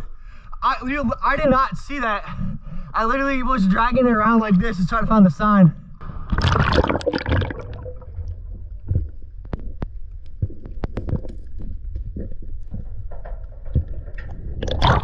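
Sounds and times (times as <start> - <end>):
muffled river water rumble: 5.7 - 15.0
sharp clicks and knocks: 8.2 - 15.0.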